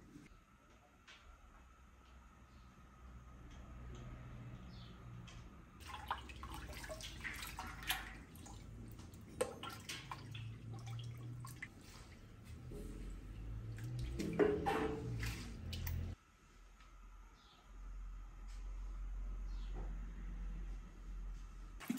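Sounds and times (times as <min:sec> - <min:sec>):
dye bath splashing and dripping: 0:05.8 - 0:16.2.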